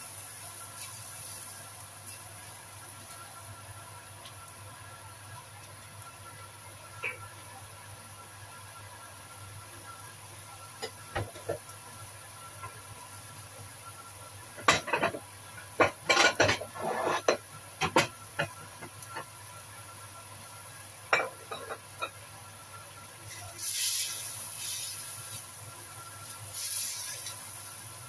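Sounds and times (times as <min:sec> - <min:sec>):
food sizzling: 0:00.0 - 0:28.0
spatula scraping a wok: 0:16.1 - 0:17.4.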